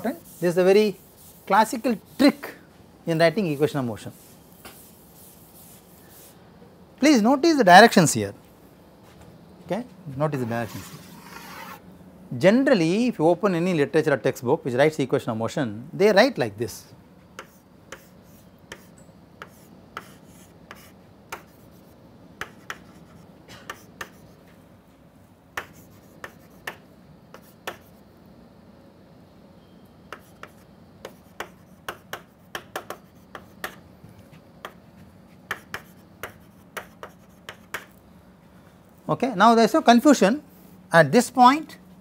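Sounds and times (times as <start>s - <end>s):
chalk tapping and scraping: 0.0s - 2.5s, 3.4s - 6.4s, 10.4s - 11.8s, 17.4s - 24.6s, 25.6s - 28.0s, 30.1s - 38.0s.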